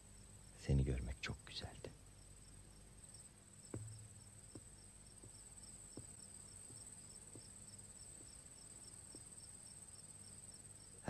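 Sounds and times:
crickets chirping: 0.0 - 11.0
faint soft taps: 3.7 - 5.4.

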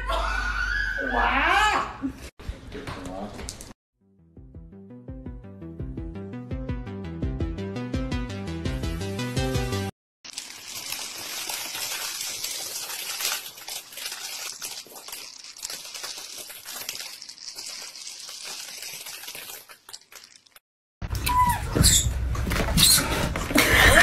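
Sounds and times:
music: 4.0 - 9.9
kibble pouring: 10.3 - 20.6.

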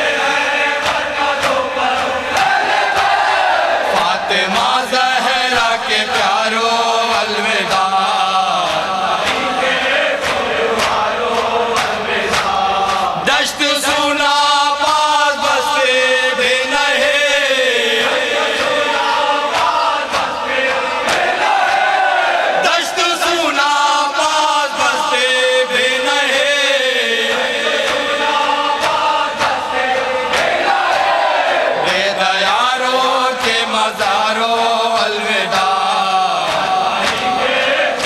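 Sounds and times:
men chanting in unison: 0.0 - 38.0
hands slapping chests: 10.2 - 13.2, 28.8 - 31.2, 36.4 - 38.0.

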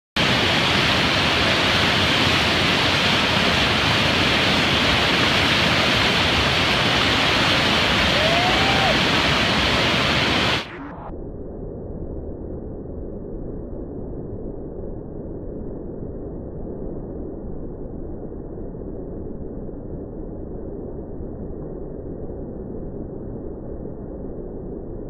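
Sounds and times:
rapids rushing: 0.2 - 10.8.

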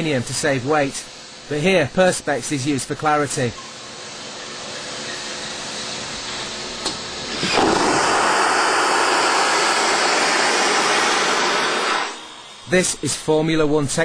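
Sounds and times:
steady hiss: 0.0 - 14.0
vacuum toilet rush of air: 7.2 - 13.9.

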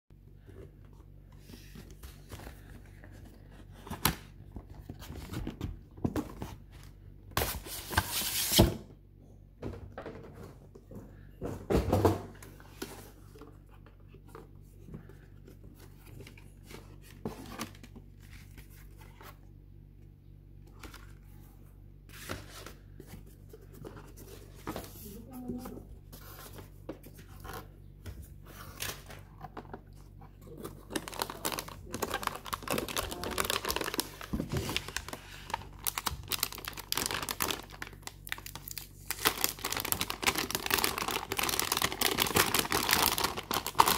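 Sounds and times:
hands handling cardboard packaging: 20.7 - 43.9.

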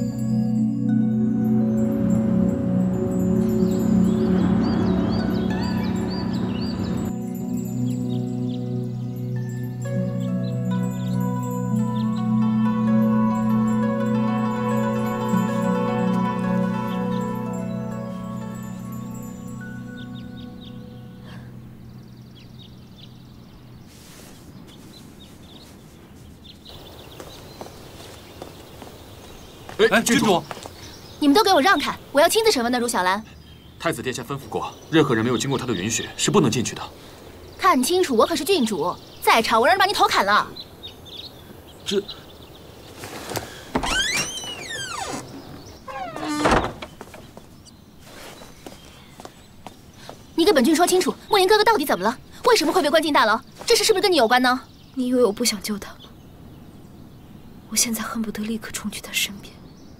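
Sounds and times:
held music notes: 0.0 - 23.7
small birds chirping: 0.0 - 59.9
faint steady hiss: 7.0 - 59.9
door hinges creaking: 43.4 - 47.4
door thud: 43.7 - 47.3.

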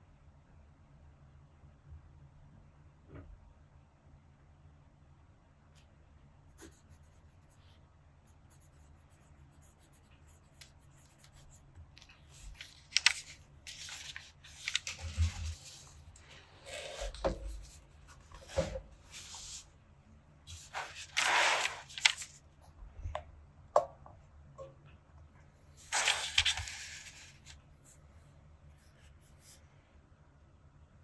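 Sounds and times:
paper rustling and sliding: 11.2 - 19.7, 20.5 - 22.4, 25.8 - 28.0.

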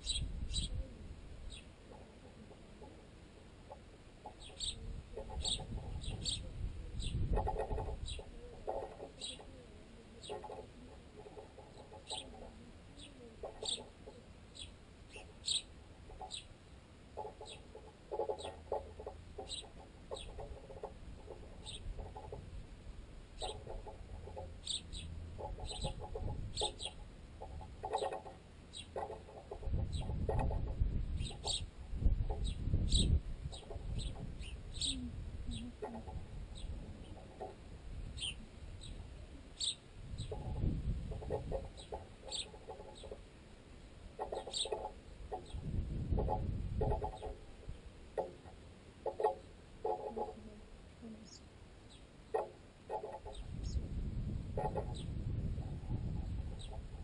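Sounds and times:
sparrows pecking: 0.0 - 57.0
rapid pecking knocks: 7.3 - 9.6, 17.2 - 22.5, 23.4 - 30.8, 40.2 - 43.2, 44.2 - 50.4, 52.3 - 53.5.

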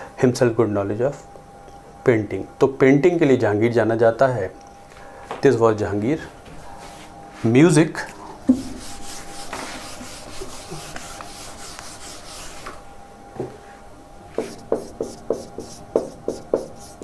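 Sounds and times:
board being wiped: 8.5 - 12.8.

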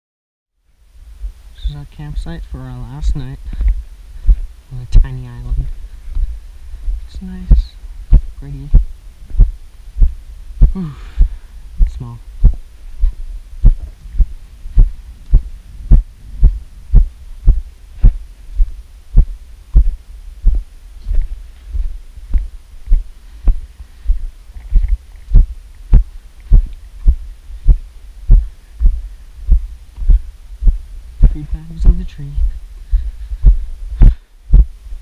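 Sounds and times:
footsteps thudding: 8.1 - 11.4, 12.4 - 31.4, 32.9 - 34.7.

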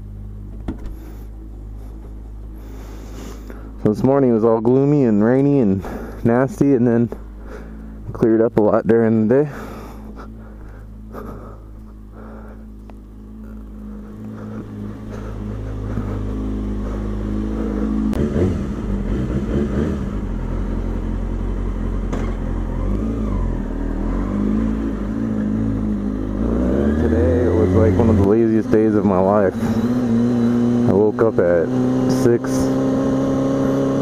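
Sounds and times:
motorcycle engine idling: 0.0 - 19.5.

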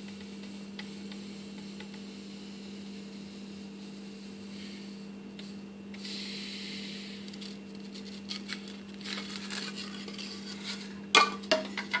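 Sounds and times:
steady electrical hum: 0.0 - 12.0
polystyrene foam rubbing and crackling: 7.4 - 10.9.

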